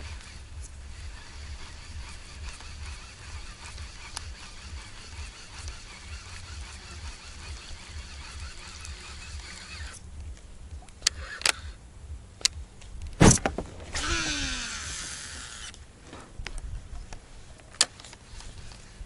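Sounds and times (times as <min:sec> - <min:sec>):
fishing reel clicks: 0:00.0 - 0:10.0, 0:11.0 - 0:11.8, 0:14.0 - 0:15.8
line running off reel: 0:00.0 - 0:10.0, 0:13.2 - 0:15.8.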